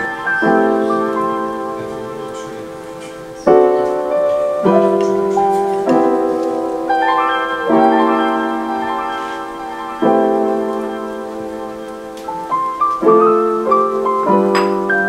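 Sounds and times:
soft piano chords: 0.0 - 15.0.

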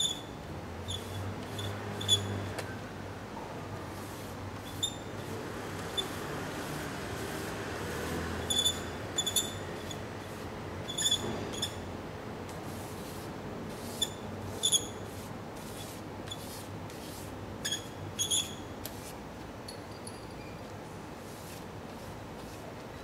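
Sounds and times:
drawing stick scratching paper: 12.7 - 17.8.

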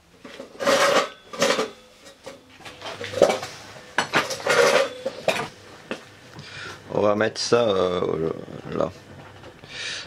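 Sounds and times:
metal parts clinking: 4.1 - 5.5.

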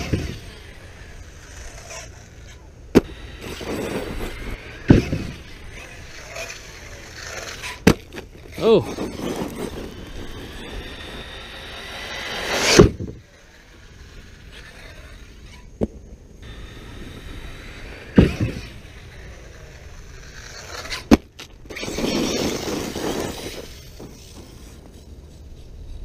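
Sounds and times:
toy car hard landing: 0.0 - 0.6, 2.9 - 13.3, 16.9 - 25.0
toy car electric motor and tyres: 0.0 - 15.8, 16.4 - 26.0.

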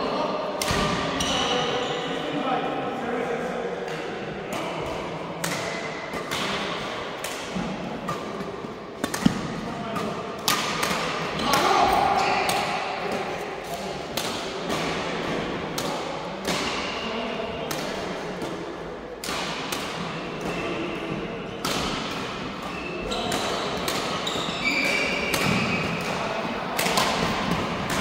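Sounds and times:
rackets hitting shuttlecocks: 3.9 - 17.0, 17.7 - 28.0
shoe squeaks on court: 24.2 - 26.0.

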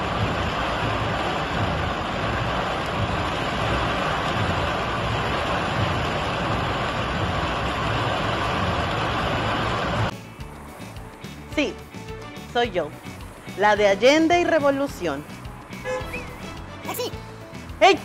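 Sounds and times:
low wind rumble: 0.0 - 10.1
heavy rain downpour hissing: 0.0 - 18.0.

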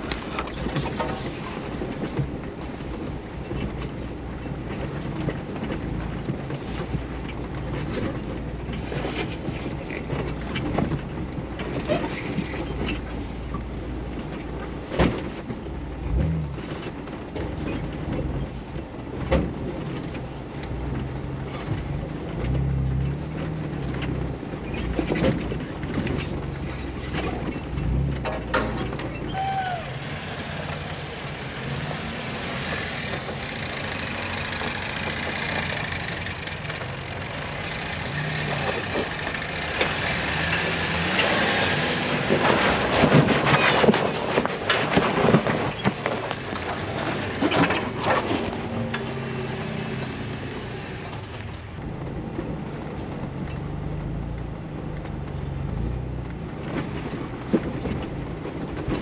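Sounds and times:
off-road vehicle engine revving: 15.8 - 18.5, 19.2 - 59.0.

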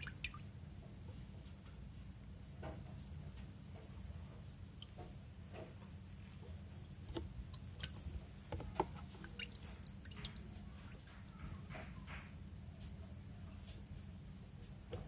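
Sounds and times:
water dripping and splashing: 0.0 - 1.1, 3.4 - 5.8, 7.0 - 15.0
low steady hum: 0.0 - 15.0.

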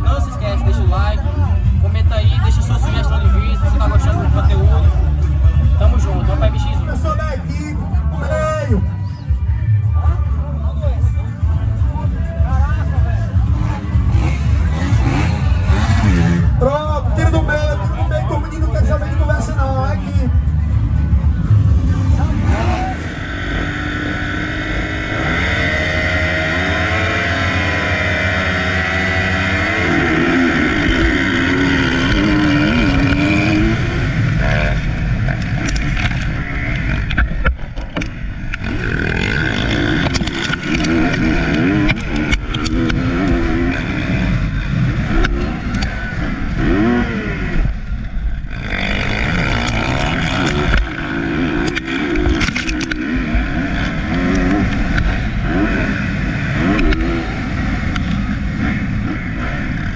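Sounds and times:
other motorbikes running: 0.0 - 59.9
motocross bike engine revving: 13.2 - 17.7, 20.8 - 59.9.

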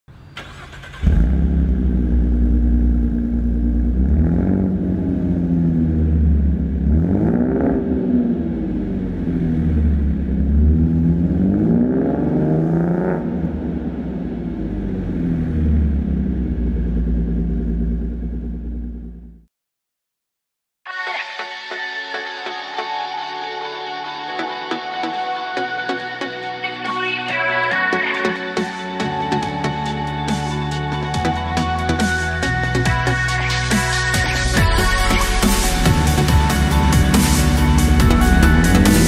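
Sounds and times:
car engine idling and revving: 0.4 - 19.5, 28.5 - 39.0.

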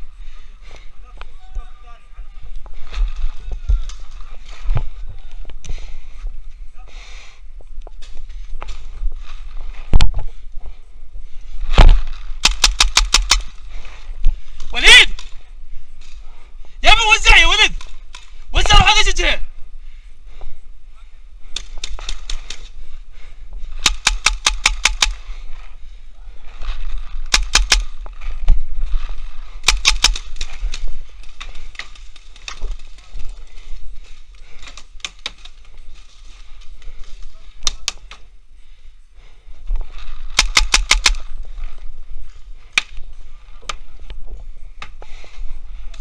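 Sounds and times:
paintball markers firing: 12.4 - 13.6, 23.8 - 25.3, 27.2 - 28.0, 29.6 - 32.7, 40.3 - 41.3.

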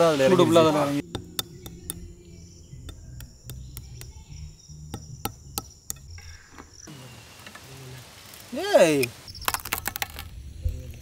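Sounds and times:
cricket trill: 1.0 - 7.0, 9.3 - 11.0.

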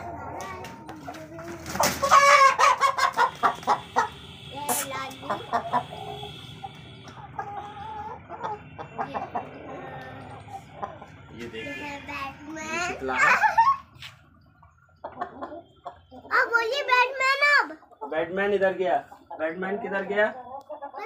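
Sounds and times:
chickens squawking and clucking: 0.0 - 21.0
wings flapping: 1.5 - 2.2.

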